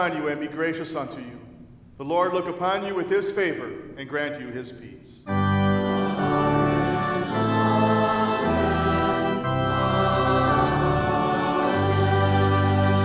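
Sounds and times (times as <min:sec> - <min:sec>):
organ playing sustained chords: 0:05.2 - 0:13.0.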